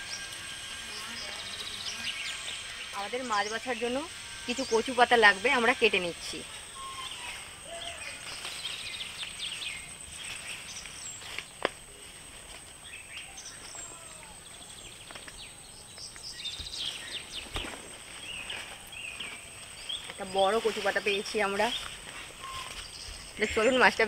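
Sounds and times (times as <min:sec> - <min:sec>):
high-pitched whine: 0:00.0 - 0:15.2
birds chirping: 0:00.0 - 0:24.0
rustling: 0:04.6 - 0:14.3, 0:16.7 - 0:24.0.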